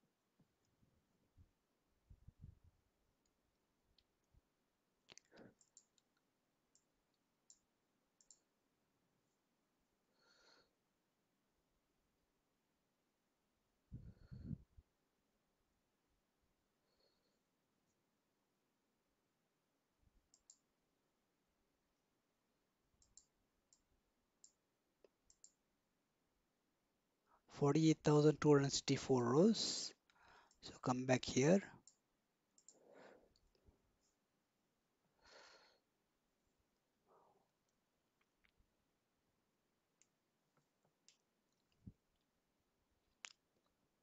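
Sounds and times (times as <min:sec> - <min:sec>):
computer mouse clicks: 0:05.0 - 0:08.5, 0:20.3 - 0:20.7, 0:23.0 - 0:25.6, 0:31.8 - 0:33.6.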